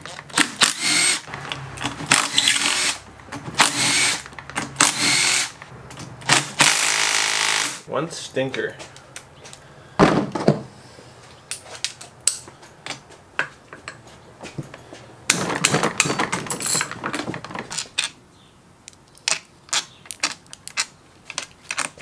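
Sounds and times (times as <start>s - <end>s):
metal bolts clinking and rattling: 15.3s - 18.2s, 18.8s - 22.0s.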